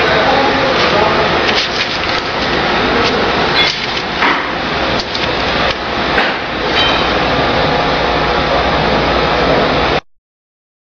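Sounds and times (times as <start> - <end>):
card cutter whirring: 0.7 - 6.1.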